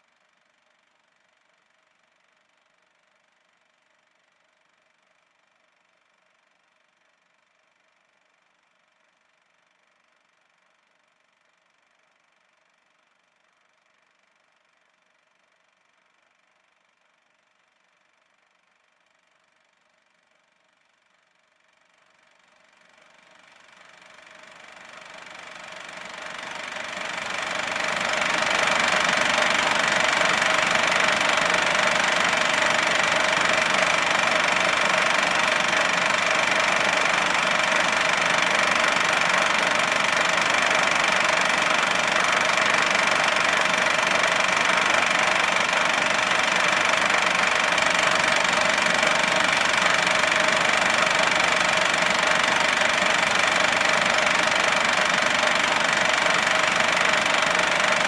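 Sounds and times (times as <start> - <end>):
machine rattling and whirring: 22.8 - 58.0.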